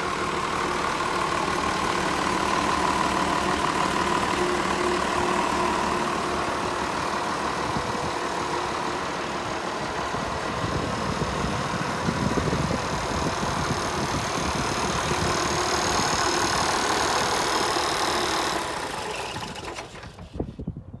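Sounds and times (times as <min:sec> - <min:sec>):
diesel tractor idling: 0:00.0 - 0:20.7.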